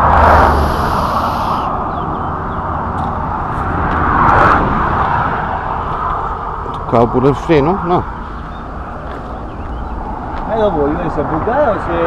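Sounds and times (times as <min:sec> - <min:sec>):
vehicles passing on expressway: 0:00.0 - 0:12.0.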